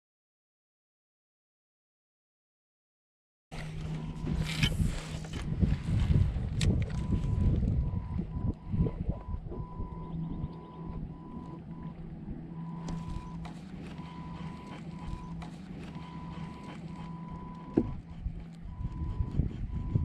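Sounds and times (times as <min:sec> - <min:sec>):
high whine: 0:03.5 - 0:20.0
small electric motor humming: 0:09.2 - 0:20.0.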